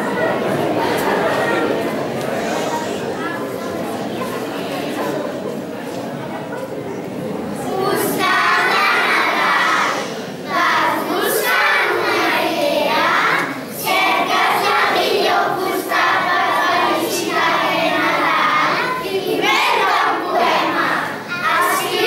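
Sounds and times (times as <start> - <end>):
children voicing in unison: 7.7 - 22.0.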